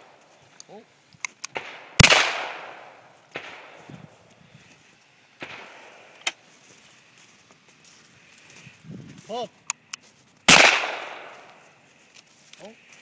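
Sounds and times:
shotgun shot: 1.5s - 3.8s, 5.4s - 6.0s, 10.5s - 11.5s.

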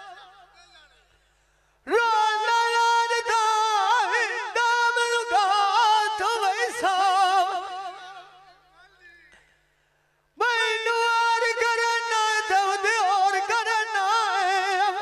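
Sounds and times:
man singing unaccompanied: 1.9s - 8.6s, 10.4s - 15.0s.

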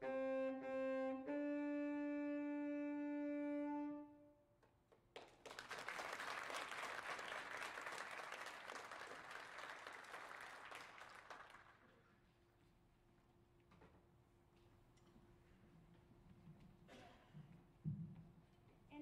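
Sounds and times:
saxophone sustained note: 0.0s - 4.4s
audience applause: 5.2s - 12.0s.

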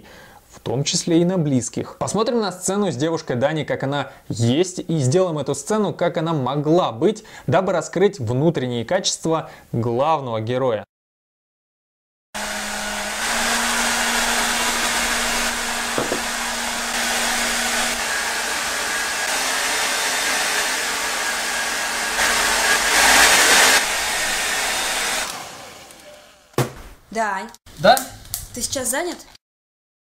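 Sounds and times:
hair dryer running: 12.4s - 26.5s.

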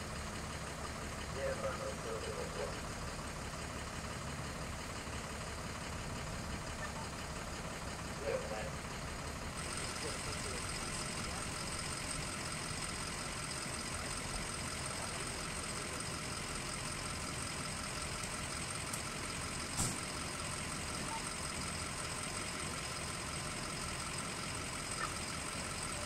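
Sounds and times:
fire truck engines idling: 0.0s - 26.0s.

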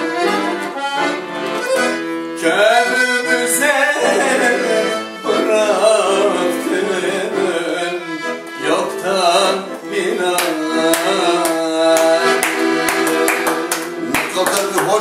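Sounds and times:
accordion playing: 0.0s - 15.0s
man singing: 2.3s - 15.0s
hand claps: 10.4s - 15.0s.

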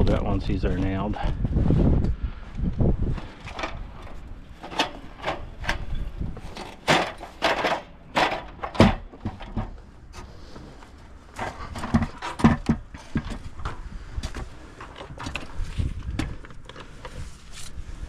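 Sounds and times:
aluminium ladder knocking and clattering: 3.4s - 9.8s, 11.4s - 16.5s.

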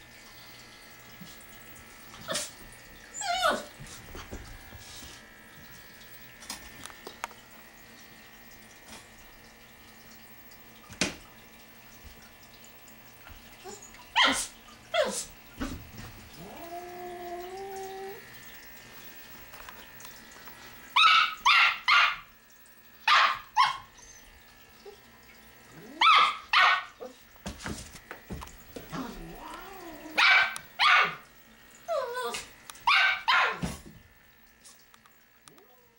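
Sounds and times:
puppy whining: 2.2s - 3.8s, 16.3s - 18.3s, 28.9s - 30.2s, 31.8s - 32.5s
dog barking: 14.2s - 15.2s, 21.0s - 22.3s, 23.1s - 23.9s, 26.0s - 27.1s, 30.2s - 31.2s, 32.8s - 33.6s
puppy yipping: 23.1s - 24.2s.

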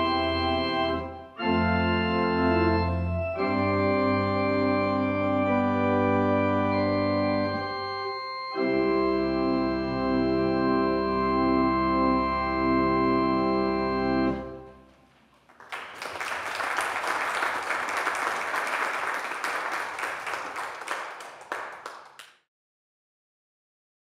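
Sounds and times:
church organ chord: 0.0s - 14.9s
audience applauding: 15.1s - 22.4s.

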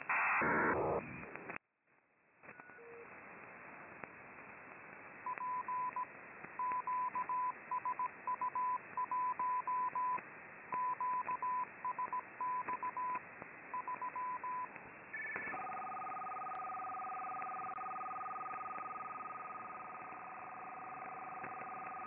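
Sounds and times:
radio band hiss: 0.0s - 1.6s.

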